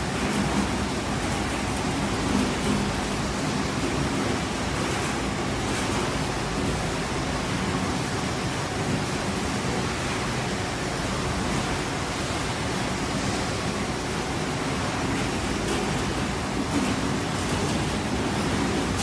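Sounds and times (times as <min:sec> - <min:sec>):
processing line machinery rushing: 0:00.0 - 0:19.0.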